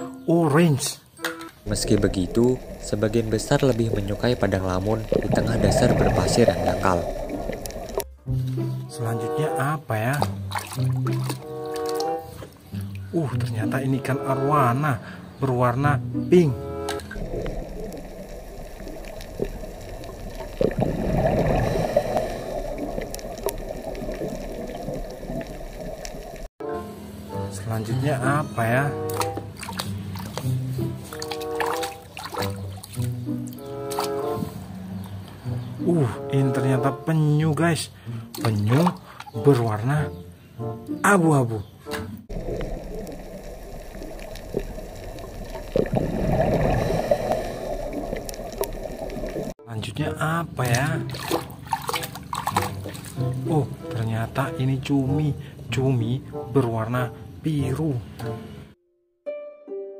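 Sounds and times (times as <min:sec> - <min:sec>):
water gurgling and bubbling: 0:01.6 - 0:08.4, 0:17.1 - 0:26.5, 0:42.3 - 0:49.6.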